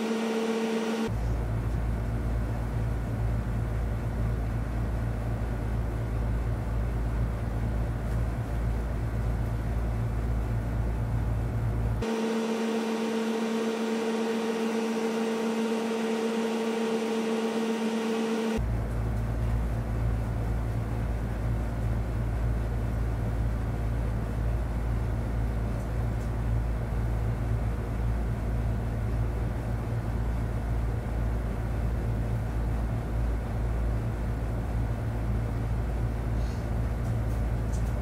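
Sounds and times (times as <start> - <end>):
mechanical hum with held tone: 0.0 - 38.0
deep steady rumble: 1.0 - 12.1, 18.5 - 38.0.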